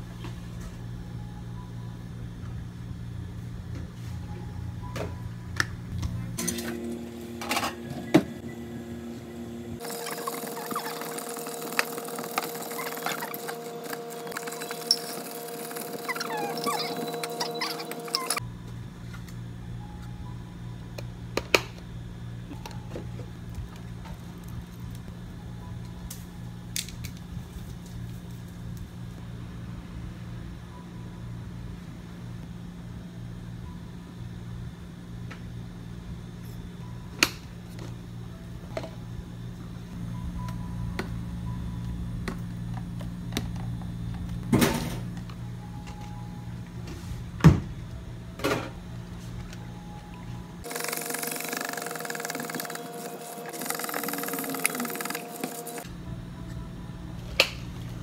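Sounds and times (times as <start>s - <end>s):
steady hum: 0.0s - 58.0s
straw squeaks: 12.3s - 18.4s.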